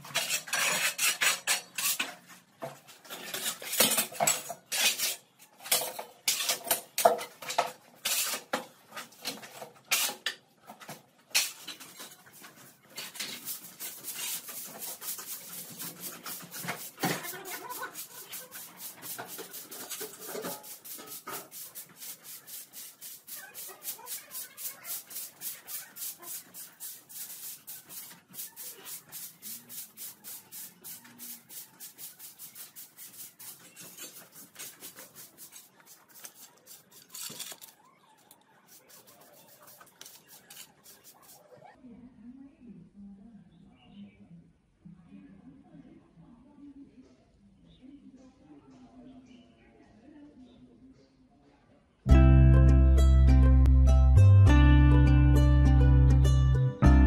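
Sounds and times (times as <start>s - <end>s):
broom sweeping concrete floor: 0.0s - 10.2s, 11.3s - 37.7s, 38.6s - 41.6s
loud clattering and scraping: 0.0s - 37.8s.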